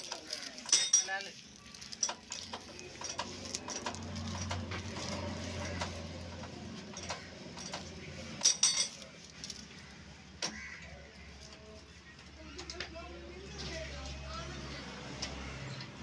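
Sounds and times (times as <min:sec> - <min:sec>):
metallic clinks and taps: 0:05.8 - 0:09.6.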